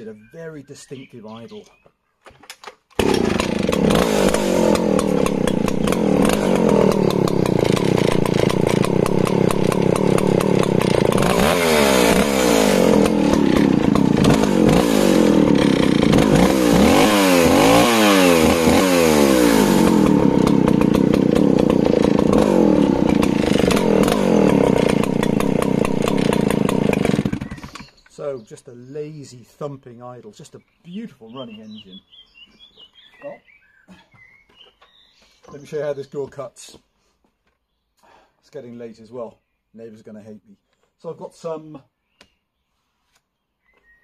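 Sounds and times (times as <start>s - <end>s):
chainsaw pull cord start: 2.3s - 28.2s
chainsaw idling: 3.0s - 28.0s
chainsaw revving: 3.0s - 28.0s.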